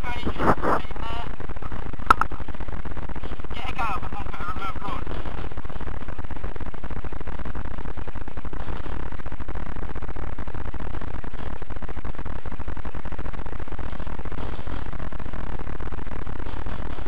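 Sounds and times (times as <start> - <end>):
loud electrical buzz: 0.0 - 17.0.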